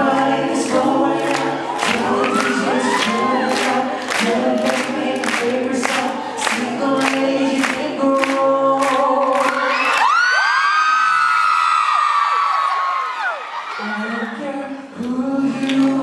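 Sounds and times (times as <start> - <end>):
men singing a cappella in harmony: 0.0 - 9.7, 13.8 - 16.0
audience screaming: 1.4 - 3.8, 9.5 - 14.6.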